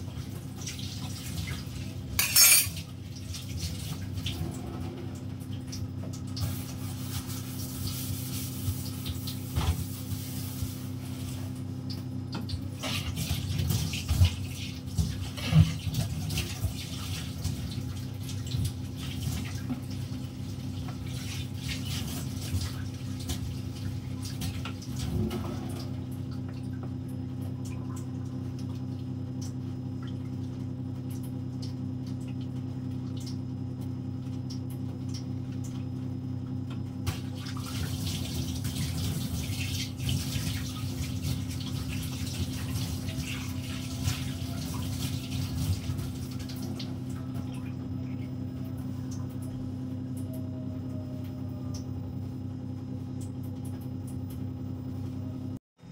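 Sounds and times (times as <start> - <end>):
utensils clinking: 2.2 - 2.8.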